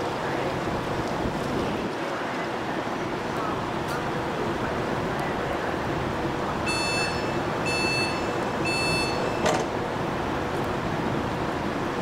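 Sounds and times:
train door warning beeps: 6.6 - 9.7.

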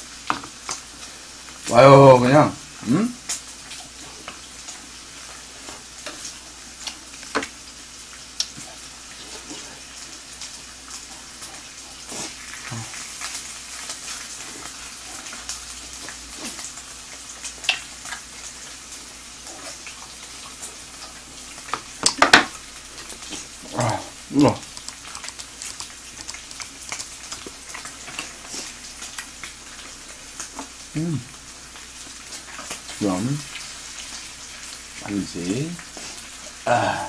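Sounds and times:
pork sizzling on a griddle: 0.0 - 37.0
sharp clicks and taps: 24.6 - 27.5.

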